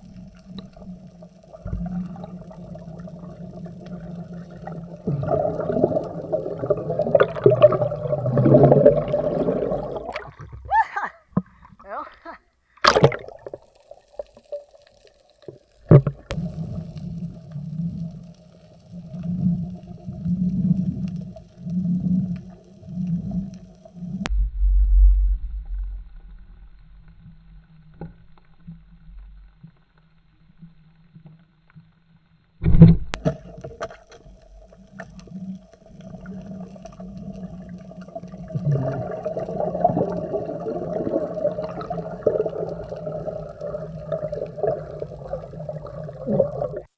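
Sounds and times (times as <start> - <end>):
low underwater hum pulsing: 0.0 - 11.7, 12.6 - 46.9
sharp underwater knocks: 12.8 - 13.4.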